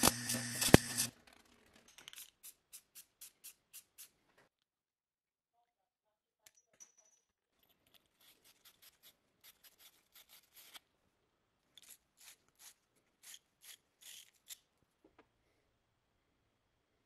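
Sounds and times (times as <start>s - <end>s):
wire brush scrubbing pipe: 0.0s - 1.1s.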